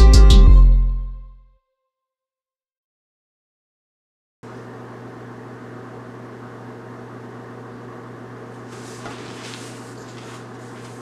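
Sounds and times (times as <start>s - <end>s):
rustling on exercise mat: 8.6s - 11.0s.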